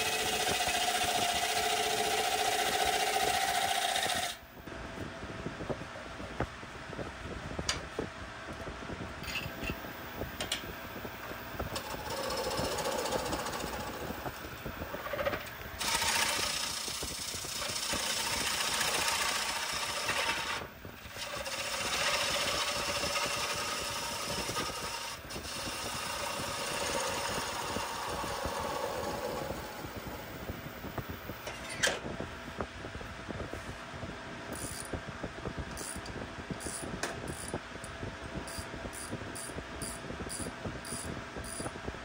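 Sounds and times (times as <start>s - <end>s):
wood lathe running: 0.0s - 4.4s, 11.7s - 14.1s, 14.9s - 30.5s.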